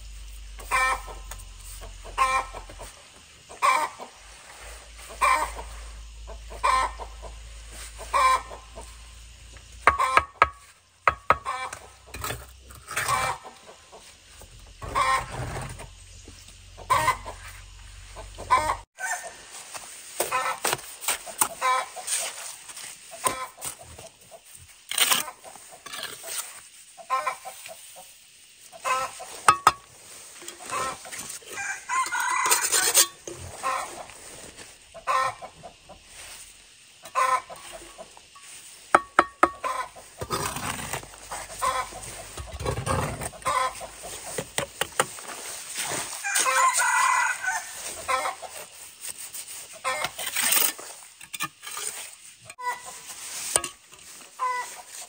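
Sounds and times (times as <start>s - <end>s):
trowel scraping and knocking: 9.8s - 13.4s, 29.4s - 31.4s, 32.0s - 33.5s, 37.8s - 46.5s, 53.4s - 54.1s
rooster crowing: 18.5s - 19.4s, 31.4s - 33.1s, 46.2s - 48.2s.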